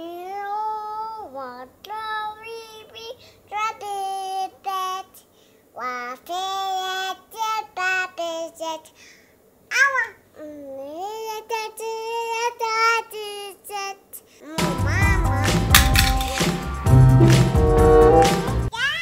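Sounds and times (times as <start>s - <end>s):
toddler singing without words: 0.0s - 9.0s, 9.7s - 15.7s.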